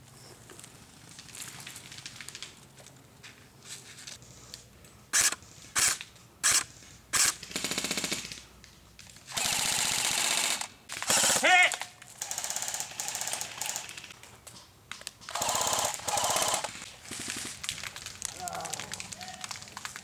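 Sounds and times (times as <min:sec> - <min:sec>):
airsoft rifle full-auto bursts: 0:05.1 - 0:08.4, 0:09.3 - 0:14.1, 0:15.3 - 0:17.5.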